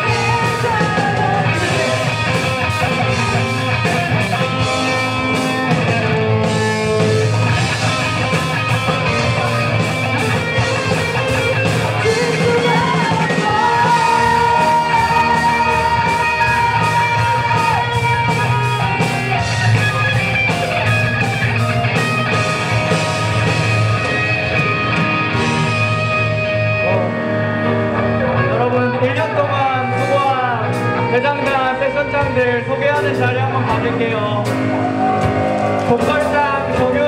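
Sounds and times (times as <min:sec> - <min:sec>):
live rock band playing: 0:00.0 - 0:37.0.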